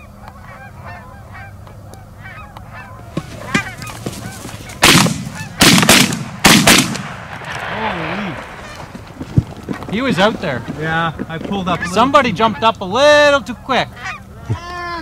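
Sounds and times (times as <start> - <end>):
geese honking: 0.0 - 15.0
shotgun blasts: 4.8 - 9.1.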